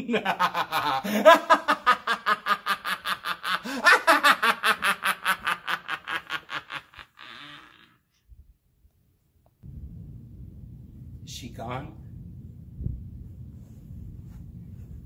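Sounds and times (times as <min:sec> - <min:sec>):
man cackling laugh: 0:00.0 - 0:07.9.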